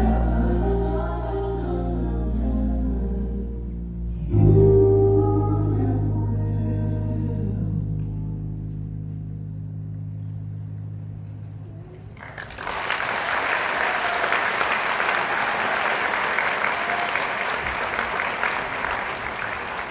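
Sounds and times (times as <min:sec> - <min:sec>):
music low held chord: 0:00.0 - 0:12.1
audience applause: 0:12.1 - 0:19.9.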